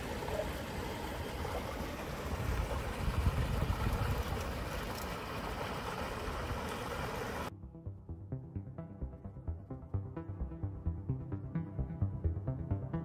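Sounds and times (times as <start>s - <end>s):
wind rumble on microphone: 2.3s - 4.7s.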